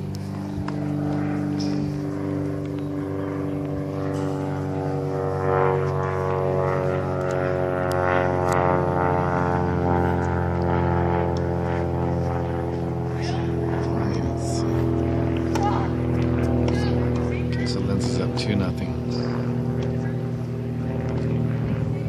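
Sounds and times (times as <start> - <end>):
engine droning: 0.0 - 22.0.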